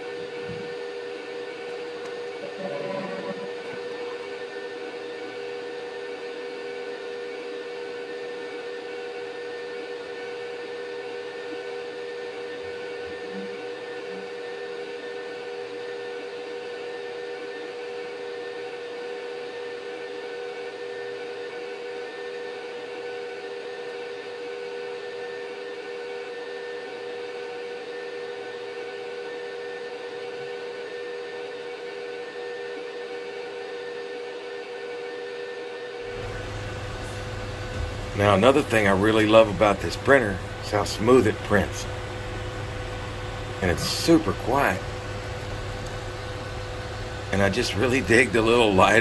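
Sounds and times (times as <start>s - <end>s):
humming held tones: 0.0s - 6.1s, 12.3s - 14.6s, 36.1s - 49.0s
printer fans and motors whirring: 0.0s - 49.0s.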